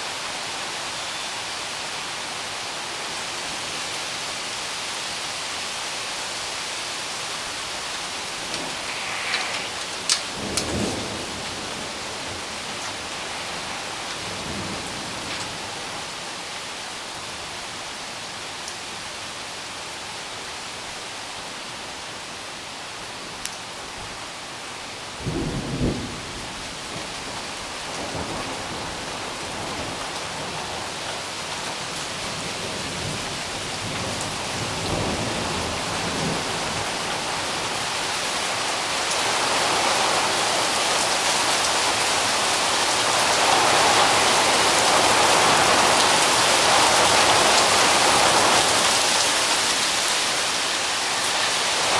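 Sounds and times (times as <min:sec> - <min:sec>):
steady rain falling: 0:00.0 - 0:51.9
thunder: 0:08.5 - 0:12.2, 0:25.2 - 0:26.8.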